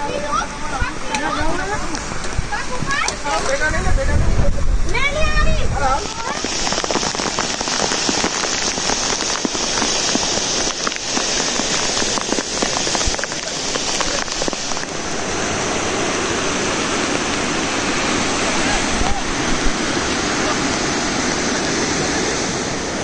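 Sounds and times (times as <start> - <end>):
churning water rush: 0.0 - 23.0
water splashing over spillway: 5.0 - 23.0.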